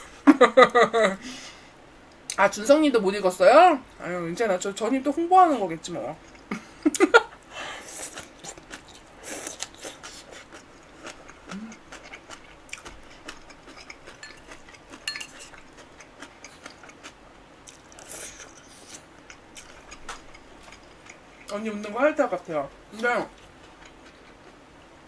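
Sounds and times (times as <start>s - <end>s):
chewing and wet mouth noises: 6.2s - 7.0s, 7.8s - 22.0s, 23.3s - 24.6s
chopsticks clicking against dishes: 13.7s - 15.6s.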